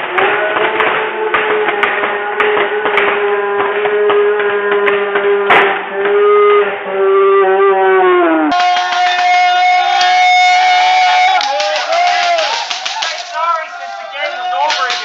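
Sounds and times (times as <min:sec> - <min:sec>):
referee shouting: 0:08.5 - 0:15.0.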